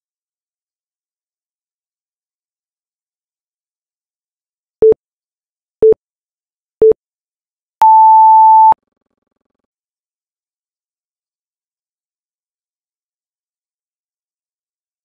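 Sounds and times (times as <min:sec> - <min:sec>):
interval timer beeps: 0:07.8 - 0:08.8.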